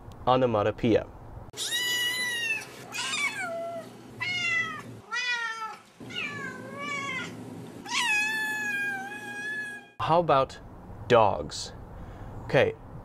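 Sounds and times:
kittens mewing: 1.6s - 9.9s.

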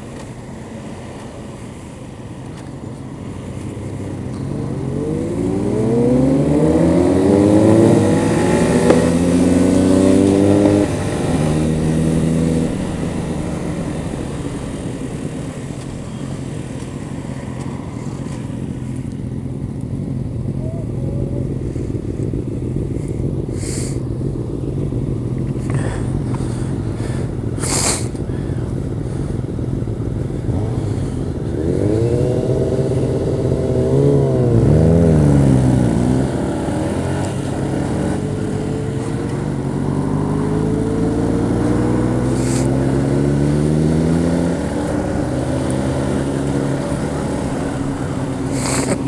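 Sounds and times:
motorcycle accelerating: 0.0s - 49.0s
motorcycle engines idling: 8.0s - 39.8s, 41.4s - 43.6s, 44.5s - 49.0s.

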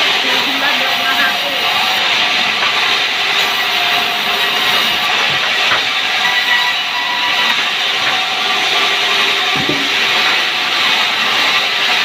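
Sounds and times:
band saw cutting wood: 0.0s - 12.0s.

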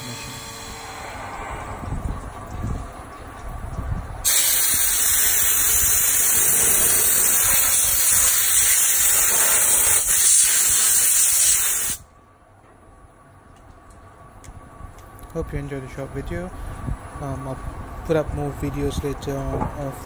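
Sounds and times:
air blow gun hissing: 4.2s - 12.0s.

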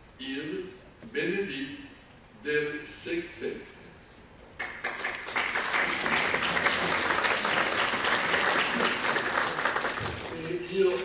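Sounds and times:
audience applauding: 4.6s - 10.4s.

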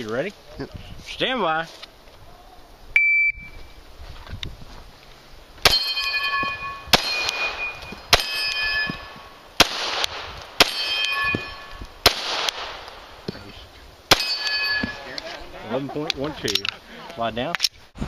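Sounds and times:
pistol shots: 5.6s - 9.0s, 9.6s - 13.1s, 14.1s - 14.8s
steel plate target ringing: 5.6s - 9.4s, 10.6s - 11.9s, 14.1s - 15.2s.

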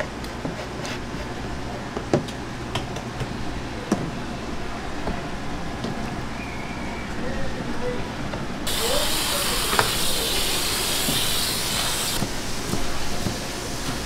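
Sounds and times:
water jet hissing: 8.6s - 14.0s.

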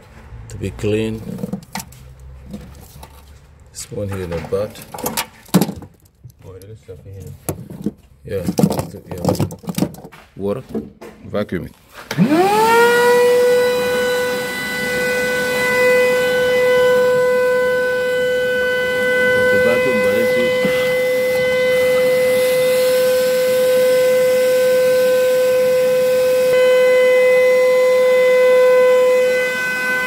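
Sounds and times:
vacuum hose sucking water: 12.1s - 26.6s
wet vacuum motor whine: 12.1s - 30.0s.

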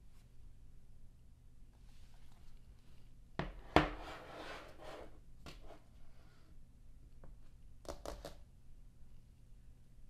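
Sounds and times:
laptop sliding on wood: 3.6s - 5.7s.

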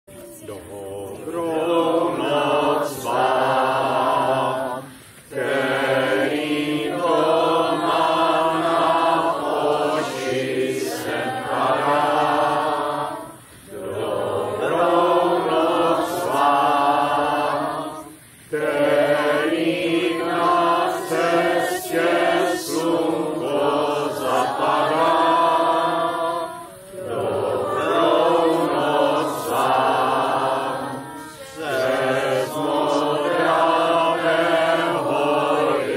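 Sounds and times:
group of people singing: 0.0s - 35.9s.

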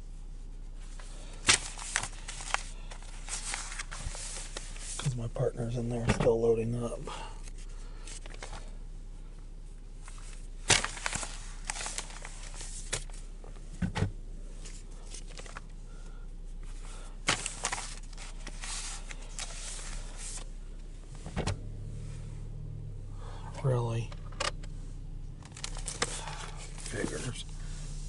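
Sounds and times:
steady low hum: 0.0s - 28.0s
newspapers rustling: 1.3s - 5.1s, 10.2s - 13.2s, 14.6s - 15.7s, 17.2s - 20.5s, 25.5s - 27.7s.

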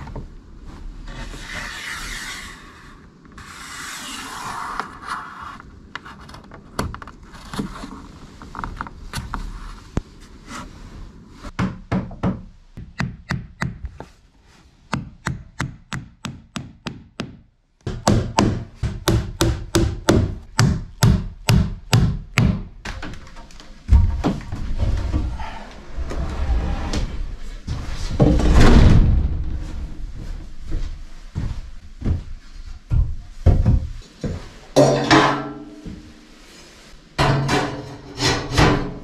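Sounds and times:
hammer hitting nail into wood: 15.0s - 22.6s.

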